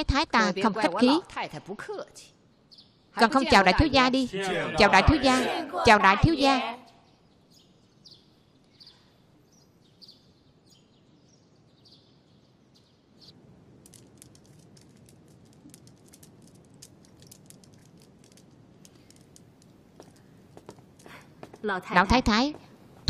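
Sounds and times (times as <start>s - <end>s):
faint bird chirps: 6.8s - 13.4s
prayer beads clicking: 13.8s - 21.6s.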